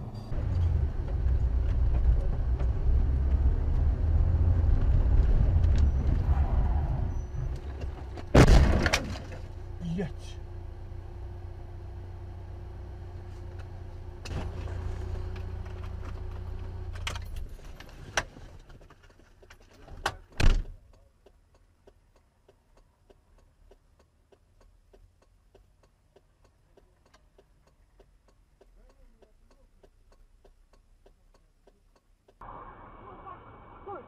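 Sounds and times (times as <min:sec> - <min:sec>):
car engine humming: 0:00.0 - 0:17.5.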